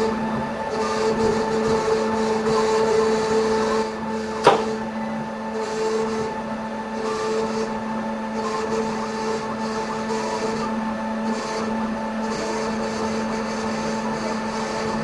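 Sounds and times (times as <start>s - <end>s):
mill cutting noise: 0.0s - 15.0s
milling spindle whining: 0.0s - 15.0s
sharp click: 4.4s - 4.8s.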